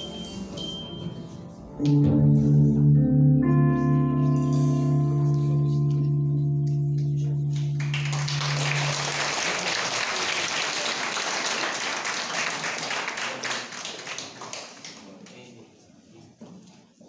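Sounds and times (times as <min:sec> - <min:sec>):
held musical chord: 0:00.2 - 0:10.2
audience applause: 0:07.8 - 0:15.2.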